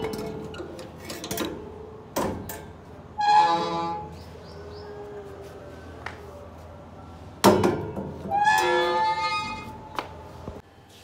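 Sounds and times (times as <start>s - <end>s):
gate creaking squeal: 3.1s - 4.2s, 8.3s - 9.9s.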